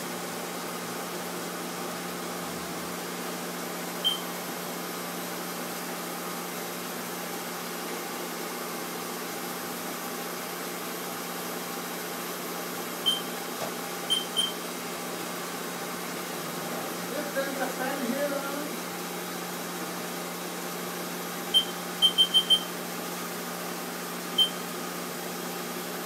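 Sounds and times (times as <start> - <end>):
short high beeps: 4.0 - 4.3, 13.0 - 13.4, 14.1 - 14.6, 21.5 - 22.7, 24.4 - 24.6.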